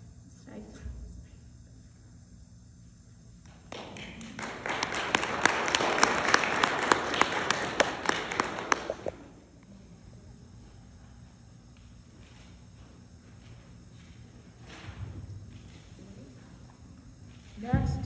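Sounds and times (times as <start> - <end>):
loud sharp claps close by: 3.5 - 9.2
audience applauding: 3.7 - 9.2.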